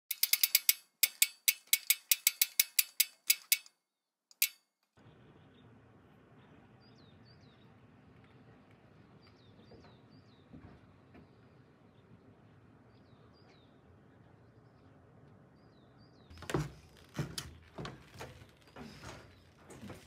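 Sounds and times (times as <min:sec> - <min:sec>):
ratchet-like mechanical clicks: 0:00.1 - 0:04.7.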